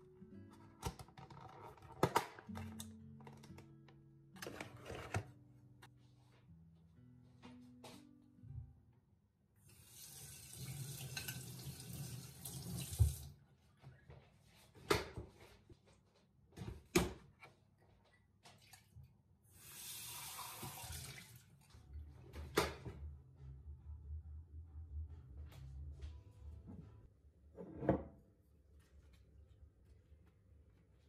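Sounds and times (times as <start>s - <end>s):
tap running into a sink: 10.0s - 13.3s, 20.2s - 21.2s.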